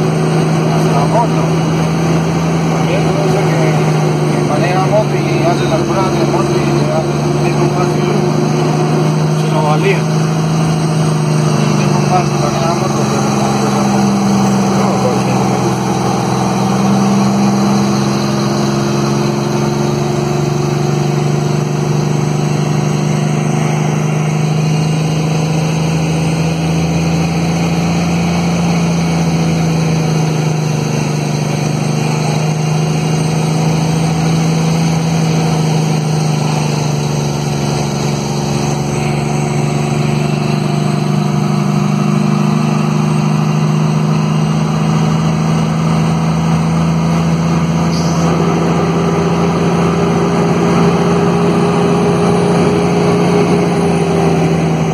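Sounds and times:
diesel engine brake: 44.6s - 54.9s.

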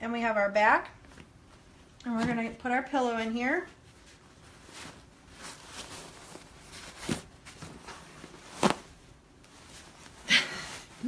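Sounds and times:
fabric rustling and scuffing: 3.5s - 11.0s.

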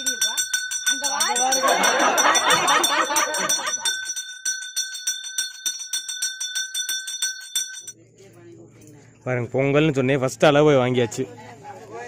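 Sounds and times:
hand bell ringing rapidly: 0.0s - 8.0s.

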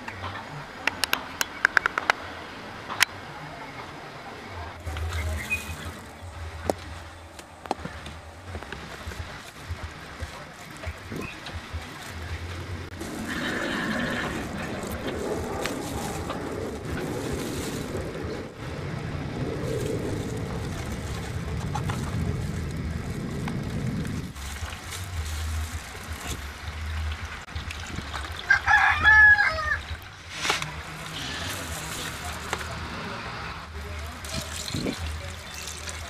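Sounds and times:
liquid poured and stirred in bucket: 19.6s - 28.5s, 33.8s - 36.0s
rooster crowing: 28.4s - 29.8s.

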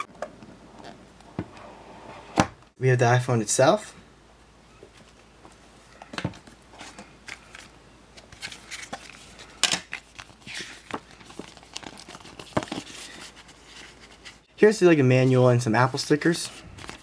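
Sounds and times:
paper rustling and crinkling: 4.9s - 14.5s, 16.3s - 17.0s.

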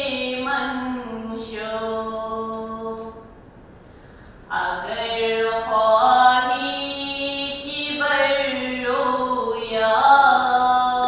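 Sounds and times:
person chanting: 4.5s - 11.0s.

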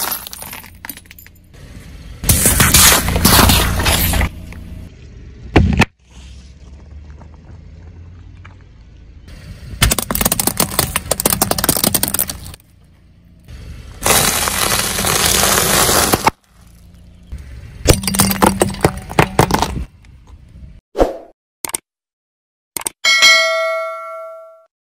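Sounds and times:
sharp crack: 2.2s - 4.4s, 14.0s - 16.5s
tyre crushing plastic: 9.9s - 12.6s, 14.0s - 16.5s.

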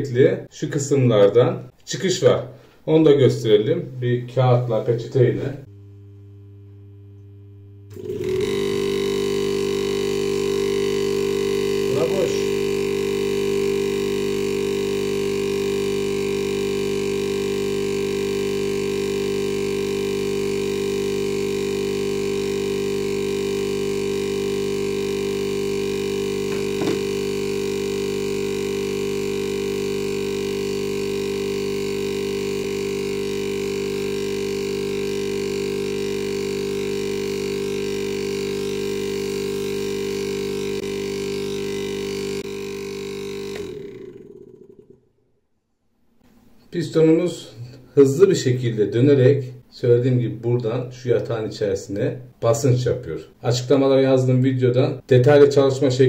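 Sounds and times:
refrigerator compressor humming: 5.6s - 45.2s.

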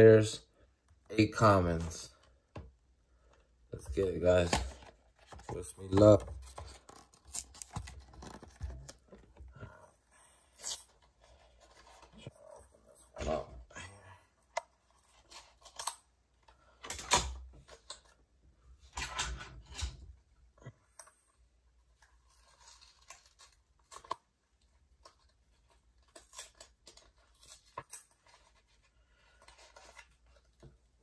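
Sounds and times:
cards rustling and clicking: 3.3s - 9.5s, 21.9s - 30.9s.

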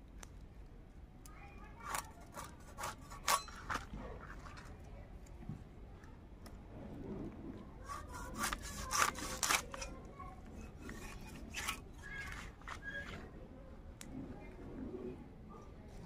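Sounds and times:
fish scraped against blade: 1.8s - 4.6s, 7.8s - 13.3s.

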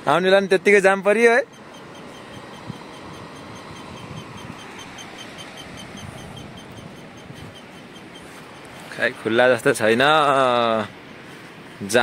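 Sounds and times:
low rumble of traffic jam: 0.0s - 12.0s
faint high chirp: 1.0s - 9.5s.

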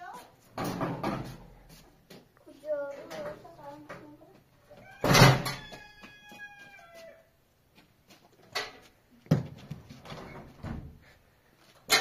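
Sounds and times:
knocks and thumps: 0.5s - 1.5s, 8.5s - 11.0s
rooster crowing: 4.8s - 7.3s.

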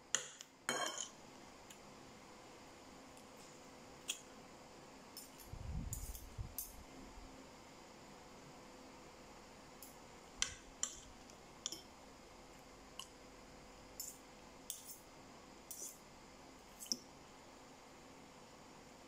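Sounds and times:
cutlery clinking on ceramic bowls: 0.2s - 1.1s.

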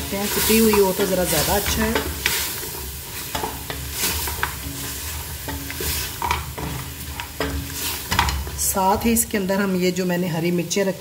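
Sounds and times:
meat sizzling in butter: 0.0s - 9.3s
spatula scraping a pot: 0.1s - 8.6s.

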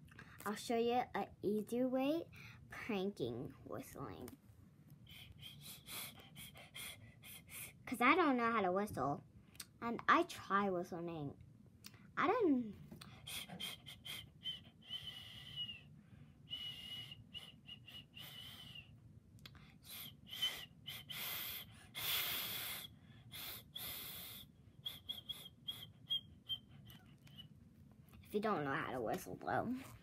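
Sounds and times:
person trying to whistle: 5.1s - 7.6s, 13.2s - 15.9s, 16.5s - 18.9s, 19.8s - 27.5s.

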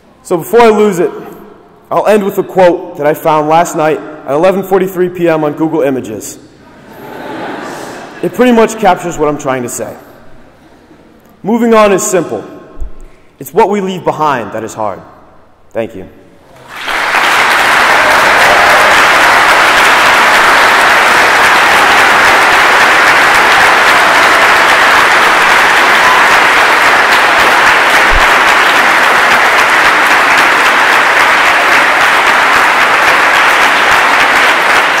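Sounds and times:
audience applause: 16.5s - 35.0s.

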